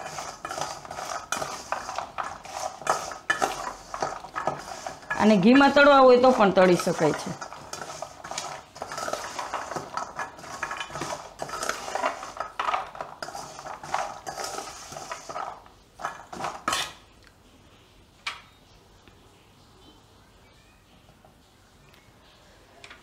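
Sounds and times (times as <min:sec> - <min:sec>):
spoon scraping metal bowl: 0:00.0 - 0:17.0.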